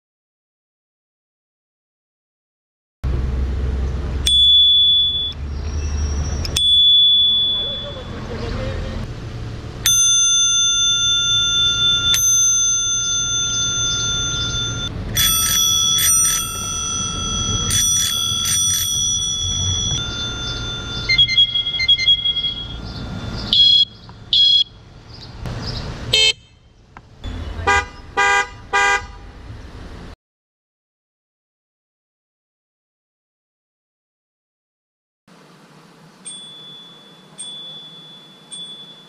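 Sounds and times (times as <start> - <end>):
bicycle bell ringing: 4.2 - 5.4, 6.0 - 8.3, 9.8 - 23.8, 36.2 - 39.0
electronic beeps: 4.4 - 8.2, 13.8 - 24.7
bicycle horn blasts: 13.8 - 22.8, 23.4 - 24.7
car horn honking: 13.9 - 24.7, 26.1 - 29.4.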